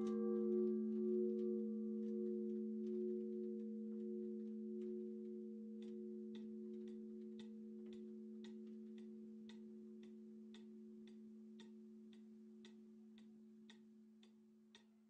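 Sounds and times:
church bell hum: 0.0s - 7.2s
pendulum clock ticking: 0.0s - 14.9s.

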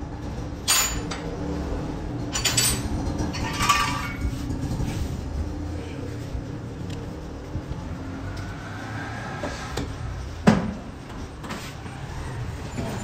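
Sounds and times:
steady low hum: 0.0s - 11.4s
steel tools clinking on metal: 0.7s - 1.2s, 2.3s - 4.2s.

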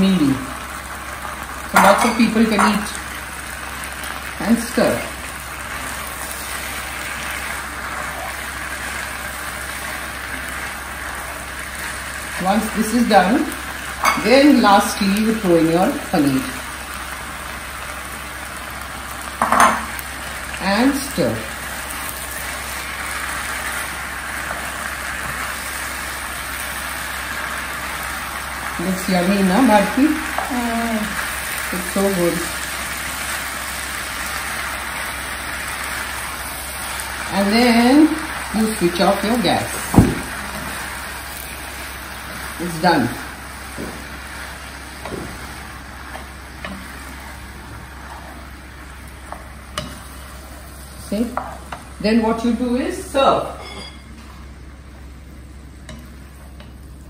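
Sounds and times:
noodles sizzling in a pan: 0.0s - 57.0s
spatula stirring noodles in wok: 40.4s - 52.0s
spatula tapping pan: 49.3s - 50.1s.

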